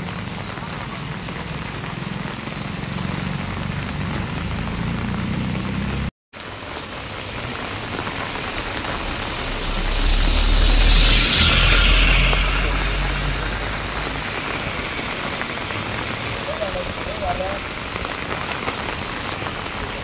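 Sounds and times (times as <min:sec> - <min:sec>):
road and wind hiss: 0:00.0 - 0:20.0
bus engine humming: 0:07.7 - 0:16.2.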